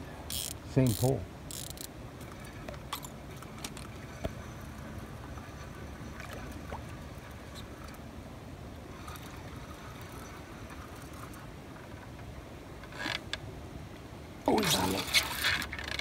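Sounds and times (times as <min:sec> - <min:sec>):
river water rumbling around boat: 0:00.0 - 0:16.0.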